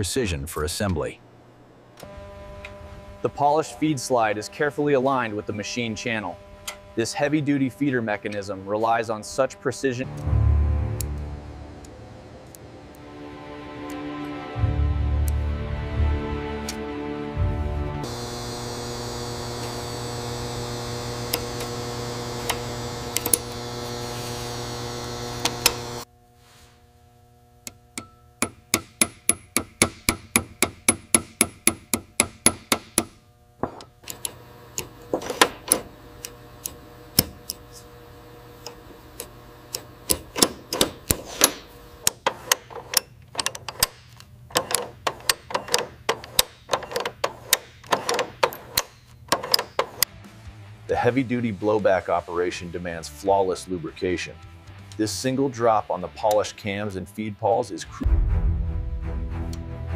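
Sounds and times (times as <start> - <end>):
steady hum: 0.0 - 16.3, 17.4 - 50.1
small clicks: 21.2 - 23.7, 25.1 - 26.0, 33.8 - 37.9, 38.6 - 50.1
small hammer tapping a steel pin: 28.0 - 33.9.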